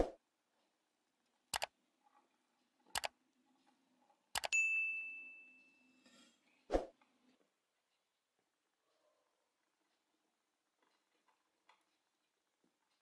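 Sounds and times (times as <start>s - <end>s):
bell ding: 4.5s - 6.0s.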